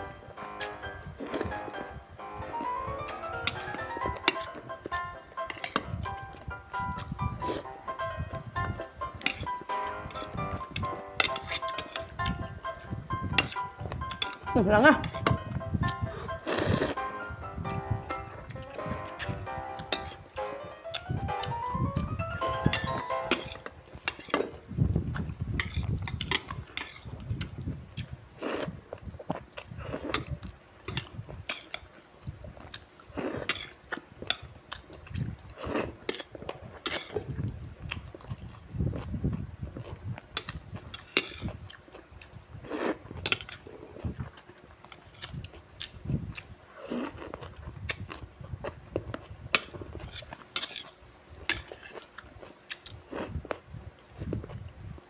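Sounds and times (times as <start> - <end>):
noodles slurped and chewed: 15.9 - 17.1, 22.8 - 54.9.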